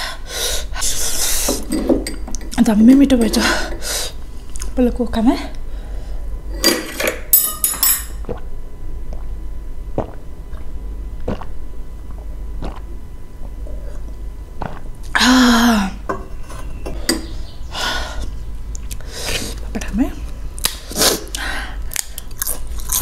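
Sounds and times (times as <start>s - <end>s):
utensil clinking against bowl: 6.6s - 8.2s
eating noise: 10.0s - 12.9s, 13.7s - 15.0s.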